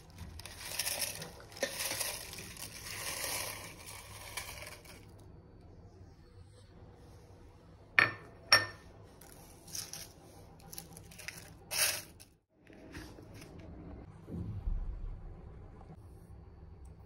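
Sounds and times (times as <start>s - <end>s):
rustling and scraping handling noises: 0.0s - 5.2s, 8.9s - 13.7s
kitchenware clinking: 8.0s - 10.1s.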